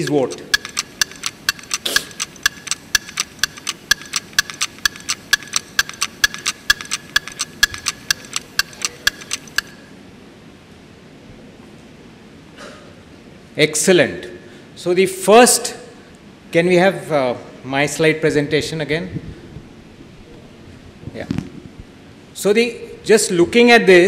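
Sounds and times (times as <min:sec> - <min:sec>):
countdown timer ticking: 0:00.0 - 0:09.9.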